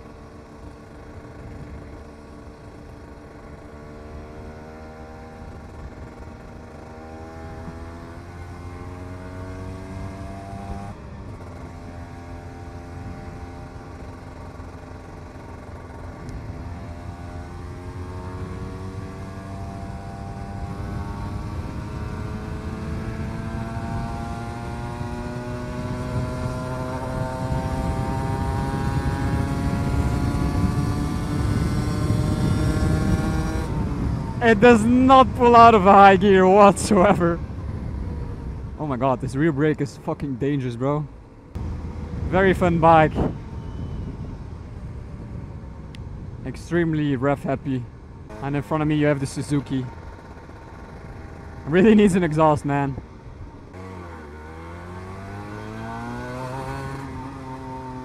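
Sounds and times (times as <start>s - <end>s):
two-stroke motorcycle engine: 0.0s - 36.7s, 48.3s - 58.0s
wind noise: 20.2s - 40.4s, 41.6s - 53.7s.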